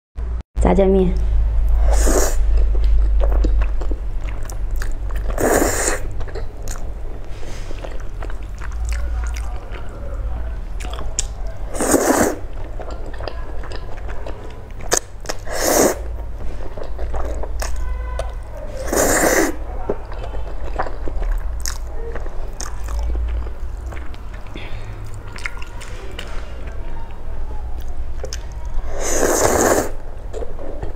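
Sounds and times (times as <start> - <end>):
chewing: 1.7 - 30.9
person slurping noodles: 1.8 - 2.7, 5.2 - 6.1, 11.7 - 12.5, 15.3 - 16.1, 18.8 - 19.6, 28.9 - 30.0.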